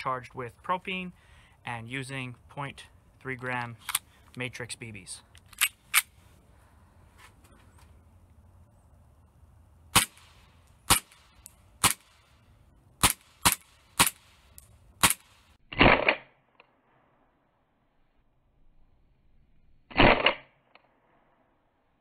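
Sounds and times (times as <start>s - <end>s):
airsoft pistol shots: 9.9s - 12.1s, 13.0s - 14.4s, 15.0s - 16.4s, 19.9s - 20.5s.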